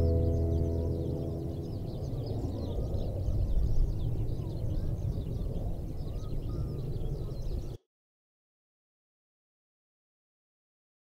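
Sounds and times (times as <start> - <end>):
low outdoor rumble: 0.0 - 4.4
small birds chirping: 0.0 - 7.8.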